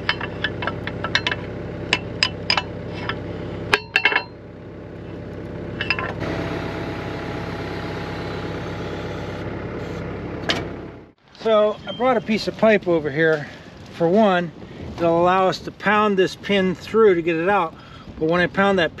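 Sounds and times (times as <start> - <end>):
metal tools clinking: 0.0 - 4.4, 5.8 - 6.2
diesel engine idling: 0.0 - 15.0.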